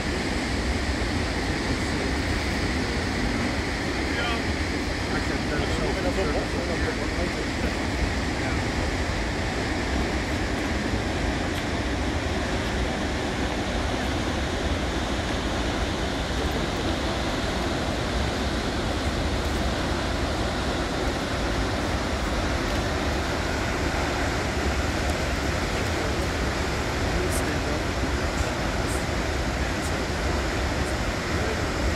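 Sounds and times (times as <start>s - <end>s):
waterfall rushing: 0.0s - 31.9s.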